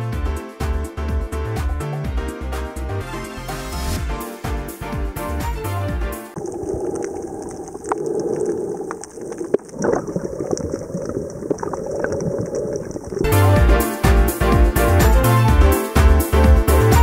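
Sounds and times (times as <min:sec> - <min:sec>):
background music: 0:00.0 - 0:06.4, 0:13.3 - 0:17.0
underwater clicks and crackles: 0:06.4 - 0:13.3
muffled underwater wash: 0:06.4 - 0:13.6.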